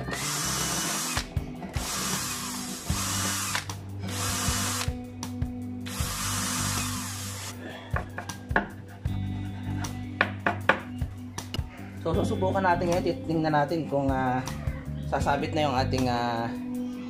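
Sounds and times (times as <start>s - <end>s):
cordless drill boring into wood: 0.0s - 4.9s, 5.9s - 7.5s.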